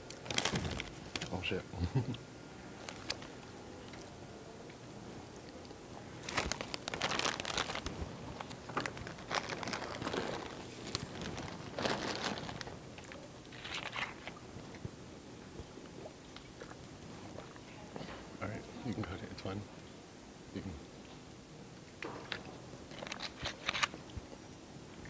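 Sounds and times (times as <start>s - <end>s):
snack bag crinkling: 0.0s - 1.4s, 2.8s - 3.3s, 6.2s - 14.4s, 22.9s - 24.0s
loud crunching of chips being chewed: 6.2s - 14.4s.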